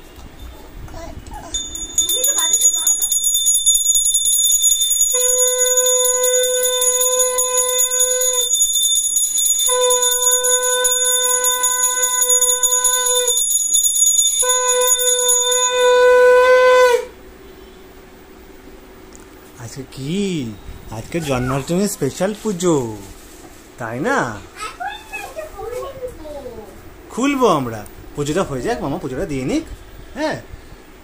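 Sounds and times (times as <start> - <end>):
small hand bell ringing rapidly: 1.5 - 16.0
conch shell blasts: 5.1 - 8.6, 9.6 - 13.4, 14.4 - 17.2.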